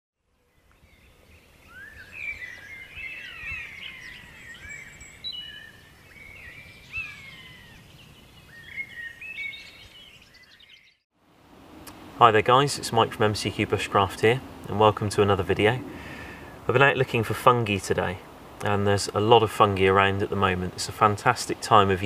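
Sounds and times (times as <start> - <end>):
songbirds singing: 0.2 - 11.0.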